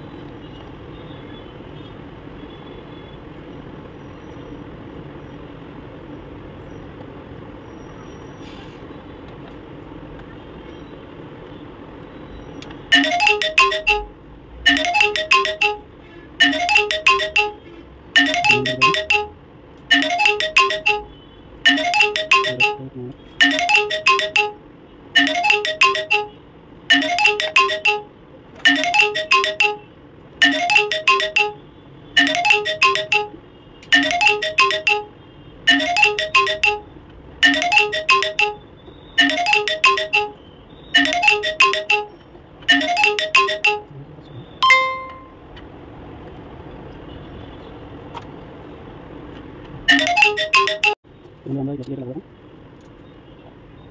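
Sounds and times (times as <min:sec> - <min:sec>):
steady beep: 0:12.9 - 0:14.1, 0:16.4 - 0:17.6, 0:18.2 - 0:21.1, 0:21.7 - 0:24.6, 0:25.2 - 0:26.3, 0:32.2 - 0:33.4, 0:39.2 - 0:40.4, 0:41.0 - 0:42.1, 0:44.6 - 0:45.4
mobile phone ringtone: 0:12.9 - 0:24.6, 0:25.2 - 0:38.6, 0:39.2 - 0:40.4, 0:41.0 - 0:43.9, 0:44.6 - 0:45.4, 0:49.9 - 0:51.0.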